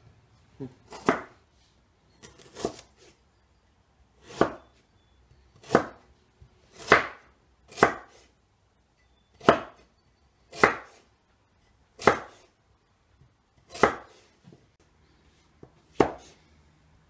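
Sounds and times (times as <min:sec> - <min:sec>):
knife chopping on wooden board: 0:00.9 - 0:01.4, 0:02.2 - 0:03.1, 0:04.2 - 0:04.8, 0:05.6 - 0:06.0, 0:06.7 - 0:08.3, 0:09.4 - 0:09.8, 0:10.5 - 0:11.0, 0:12.0 - 0:12.5, 0:13.6 - 0:14.3, 0:15.6 - 0:16.4.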